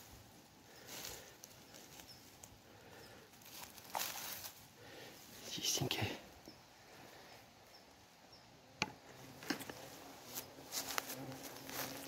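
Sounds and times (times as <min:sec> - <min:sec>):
footsteps crunching dry leaves: 0:00.8 - 0:02.6, 0:03.3 - 0:04.7, 0:09.6 - 0:12.0.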